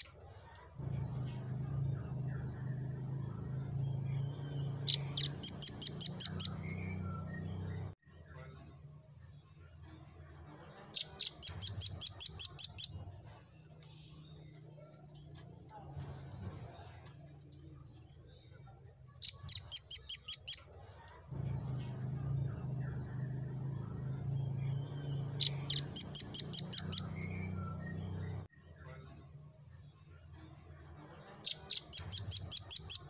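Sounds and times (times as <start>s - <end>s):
low hum: 0.8s - 8.0s, 21.3s - 28.5s
bird singing sharp high notes: 3.5s - 7.9s.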